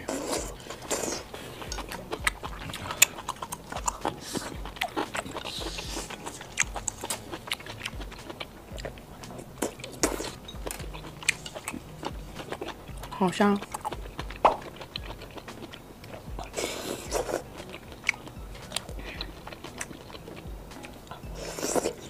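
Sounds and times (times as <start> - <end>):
close chewing: 0.0 - 22.0
mouth clicks and smacks: 0.0 - 22.0.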